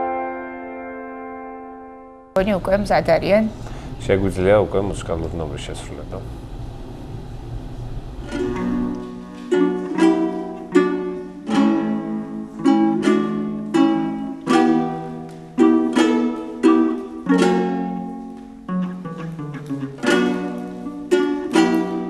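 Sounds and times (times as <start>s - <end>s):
plucked lutes strumming chords: 0.0s - 2.3s, 8.3s - 22.0s.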